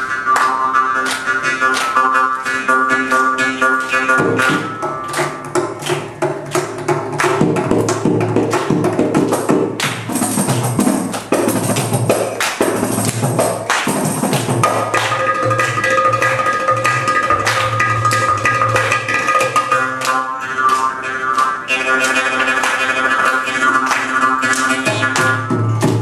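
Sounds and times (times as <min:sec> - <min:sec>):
percussion ensemble drumming: 0:04.2 - 0:20.2, 0:24.8 - 0:26.0.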